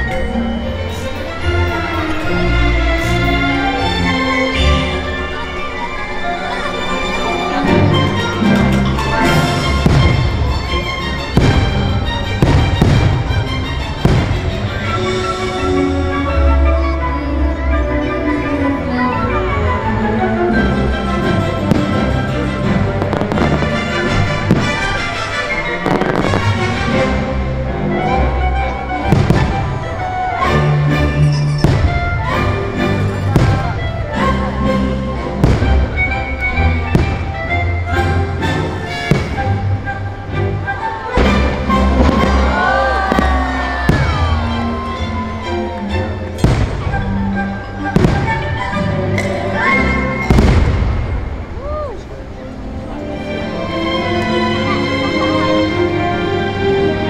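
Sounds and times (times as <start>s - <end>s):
holiday music: 0.0s - 57.0s
firework bangs: 8.9s - 15.1s, 21.7s - 27.3s, 29.1s - 30.0s, 31.6s - 32.3s, 33.1s - 33.8s, 35.4s - 37.4s, 39.0s - 39.7s, 41.2s - 45.0s, 46.4s - 47.2s, 47.9s - 49.3s, 50.2s - 51.7s.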